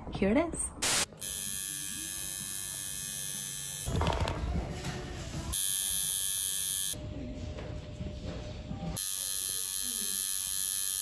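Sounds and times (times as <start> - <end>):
tattoo machine buzzing: 0.8 - 3.9, 5.5 - 7.0, 9.0 - 11.0.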